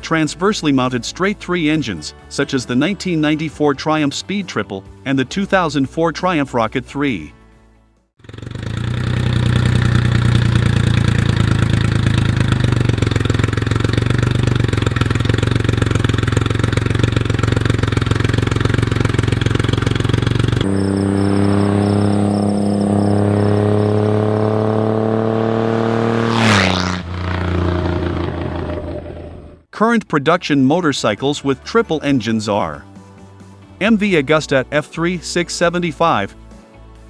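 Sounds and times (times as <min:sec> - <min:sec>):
motorcycle engine running: 0:08.2 - 0:29.7.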